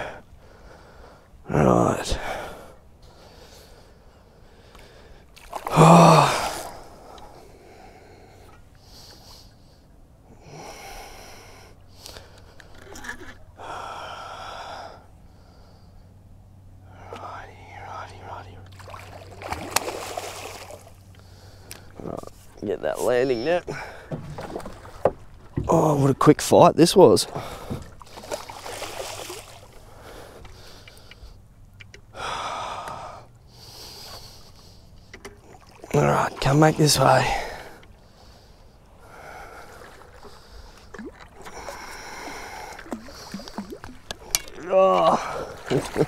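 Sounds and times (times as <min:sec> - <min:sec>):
person breathing heavily: 0:13.6 - 0:16.1, 0:32.1 - 0:35.0, 0:41.5 - 0:44.3
person breathing hard: 0:32.1 - 0:34.9.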